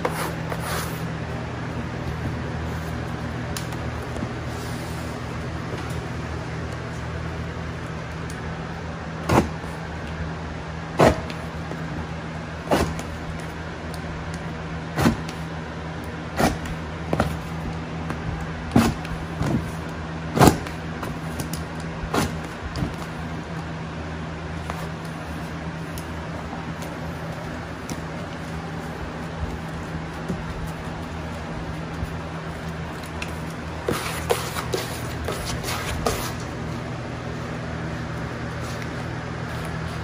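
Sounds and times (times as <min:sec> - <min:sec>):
steady low hum: 0:00.0 - 0:40.0.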